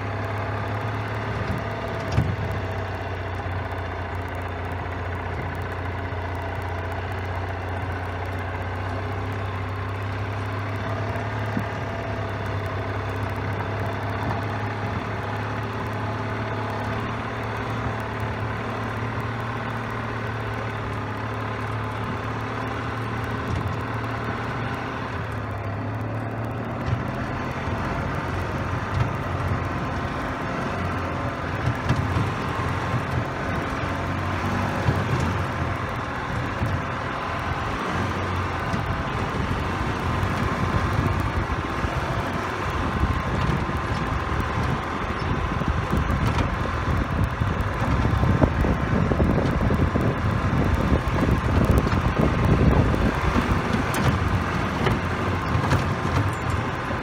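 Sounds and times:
golf cart motor humming: 0.0 - 57.0
cart bumping and rattling: 0.2 - 3.3, 25.2 - 57.0.

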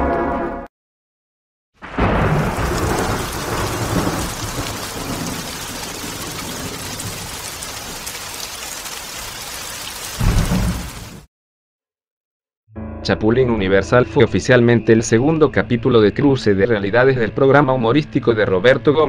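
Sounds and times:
thunder rumbling: 1.8 - 11.2
heavy rain: 1.8 - 11.3.

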